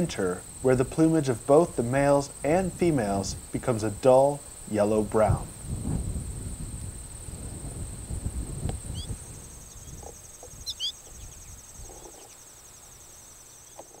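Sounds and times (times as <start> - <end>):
pulsing insect trill: 0.0 - 14.0
steady high insect trill: 0.0 - 14.0.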